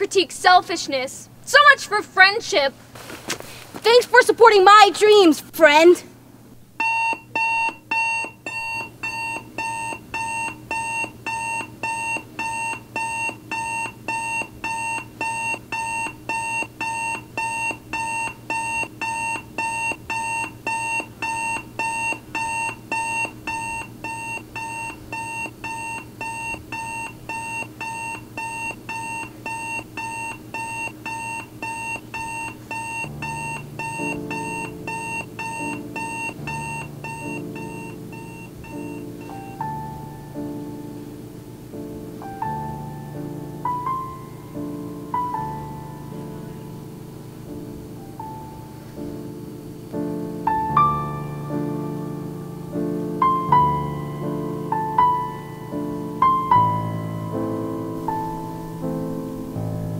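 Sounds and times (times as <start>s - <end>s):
alarm clock beeping: 6.8s - 39.6s
soft piano music: 33.0s - 59.9s.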